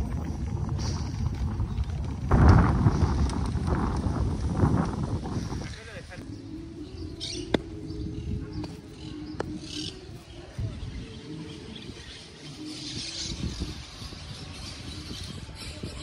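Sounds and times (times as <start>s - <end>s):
bicycle rolling on dirt path: 0.0s - 6.2s
wind rumble: 0.0s - 16.0s.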